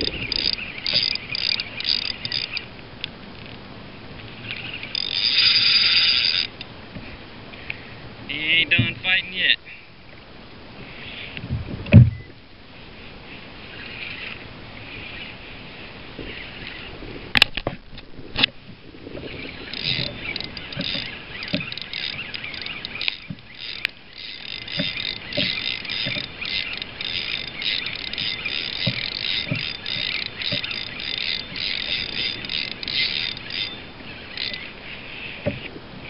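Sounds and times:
fishing reel whirring: 0.0s - 3.6s, 4.4s - 6.7s, 18.2s - 35.4s.

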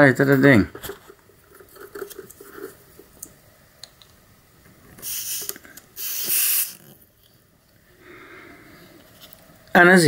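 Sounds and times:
air hose hissing: 5.0s - 7.0s.

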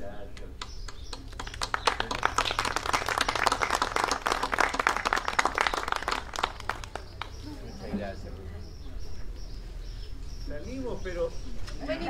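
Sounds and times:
small group applauding: 0.6s - 7.8s.

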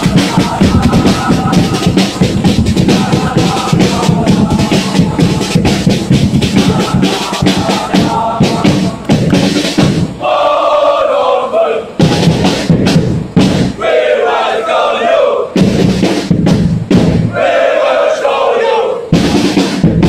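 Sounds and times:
fast steady beat: 0.0s - 10.2s, 12.0s - 13.8s, 15.5s - 17.6s, 19.1s - 20.0s
crowd chanting and cheering: 0.0s - 12.8s, 13.7s - 15.7s, 17.2s - 19.6s.

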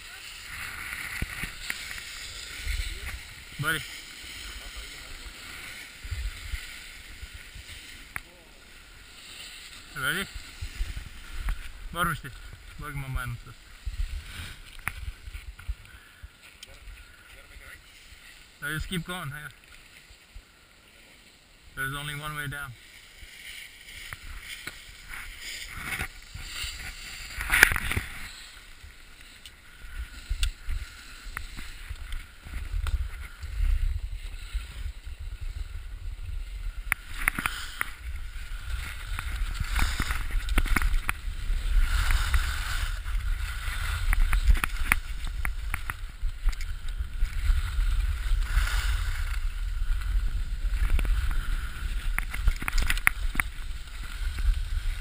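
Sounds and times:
wind rumble on microphone: 0.0s - 8.0s, 29.8s - 55.0s
skis scraping over snow: 0.0s - 15.8s, 16.4s - 55.0s.

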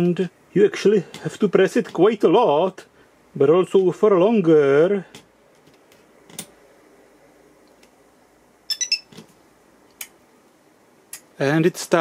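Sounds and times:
high electronic beeps: 8.7s - 9.1s.

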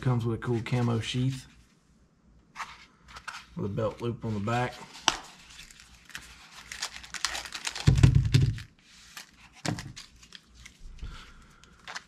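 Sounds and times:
plastic rustling and clicks: 5.0s - 12.0s.

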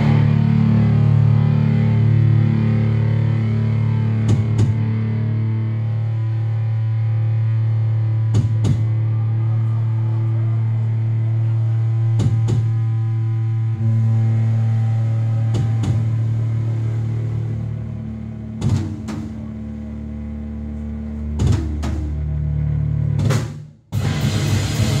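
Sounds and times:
distorted electric guitar drone: 0.0s - 25.0s
drum hits: 18.6s - 19.4s.

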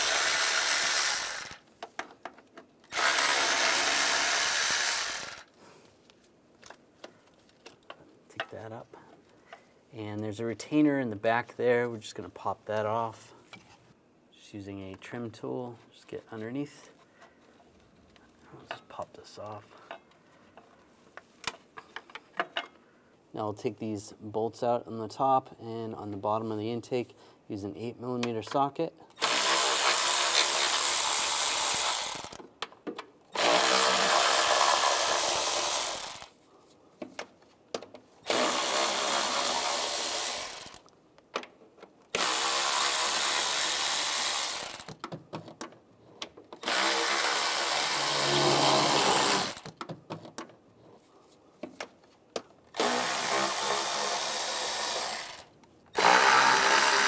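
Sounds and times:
cordless power tool spinning: 0.0s - 1.6s, 2.9s - 5.5s, 29.2s - 32.4s, 33.4s - 36.3s, 38.2s - 40.9s, 42.2s - 45.0s, 46.6s - 49.7s, 52.8s - 57.0s.

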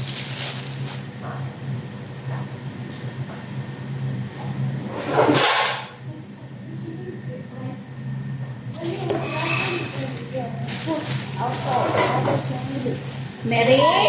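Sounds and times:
plastic bags rustling: 0.0s - 1.2s, 8.8s - 14.0s
steady low hum: 0.0s - 14.0s.

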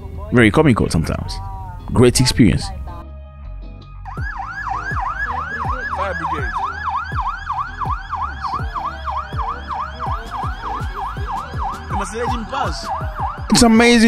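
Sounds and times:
low traffic rumble: 0.0s - 14.0s
slow wailing siren: 4.1s - 13.6s
fast yelp siren: 4.1s - 13.9s.

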